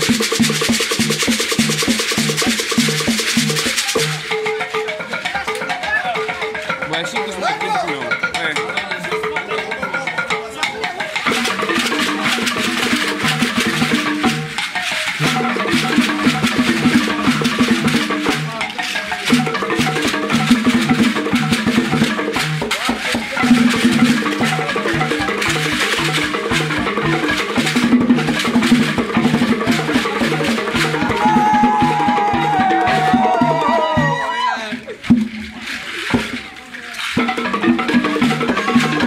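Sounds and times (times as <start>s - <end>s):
drum-led percussion music: 0.0s - 39.0s.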